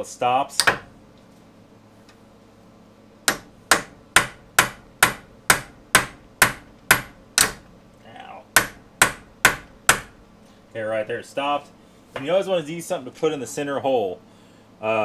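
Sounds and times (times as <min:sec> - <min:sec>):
hammer tapping metal punch: 0:00.6 - 0:00.9, 0:03.2 - 0:07.7, 0:08.5 - 0:10.2.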